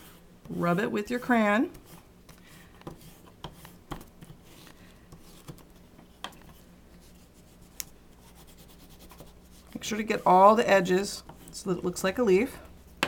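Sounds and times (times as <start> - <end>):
crayon scratching on paper: 7.0 - 10.4.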